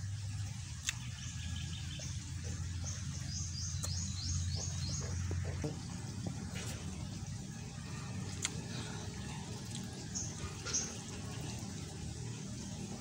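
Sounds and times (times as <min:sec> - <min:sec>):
bird chirps: 0:01.0 - 0:05.8
chewing with full mouth: 0:08.0 - 0:11.6.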